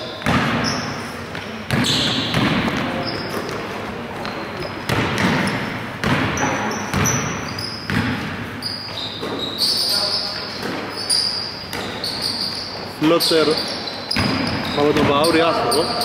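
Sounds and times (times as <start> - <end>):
sneaker squeaks: 0.0 - 16.0
basketball bouncing on wooden floor: 0.2 - 3.6, 4.2 - 8.4.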